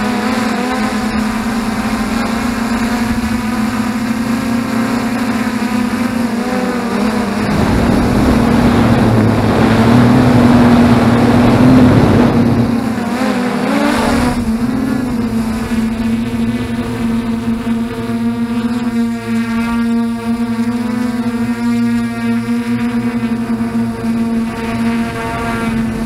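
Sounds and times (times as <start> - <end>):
prop wash and wind rushing: 0.0 - 19.3, 23.3 - 26.0
drone motors and propellers humming: 0.0 - 26.0.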